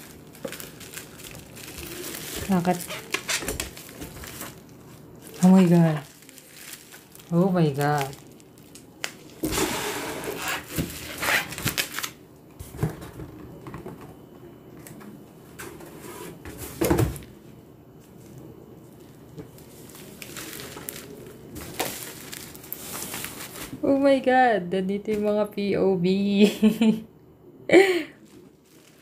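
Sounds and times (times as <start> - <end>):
bubble wrap and cardboard crinkling: 0.0 - 13.2, 17.9 - 24.0, 28.2 - 29.0.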